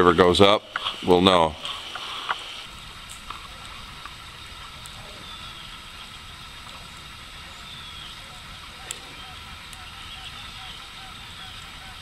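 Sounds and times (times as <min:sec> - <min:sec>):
river flowing: 0:00.0 - 0:12.0
faint ticks: 0:03.0 - 0:05.0.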